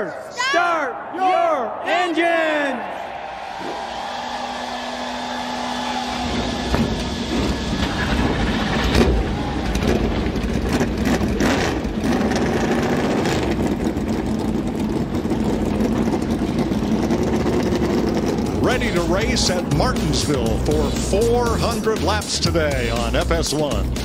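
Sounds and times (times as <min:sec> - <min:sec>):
race car engines running: 0:03.1 - 0:24.0.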